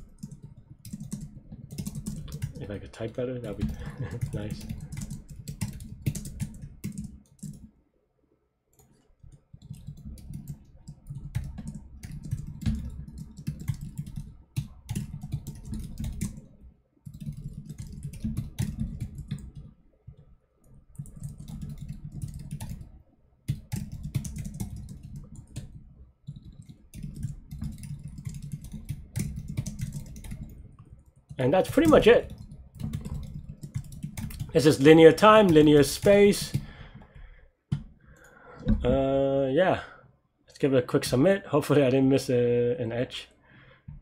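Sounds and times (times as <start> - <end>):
keyboard typing: 0.0 - 7.7, 8.7 - 39.1.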